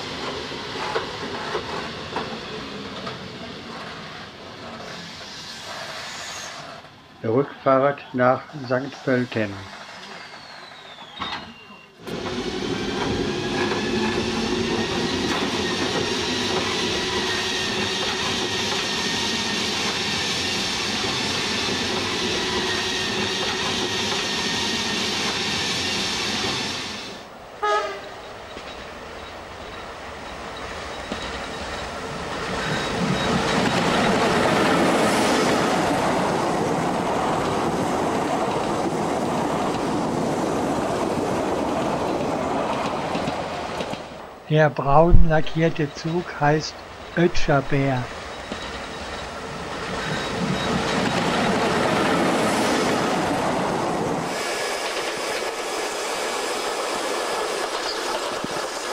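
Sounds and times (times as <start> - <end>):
train wheels on rails: 0.0 - 7.1, 8.6 - 44.4, 45.0 - 58.9
electric locomotive whine and hum: 0.0 - 44.4, 48.0 - 58.9
train horn toot: 27.6 - 28.2.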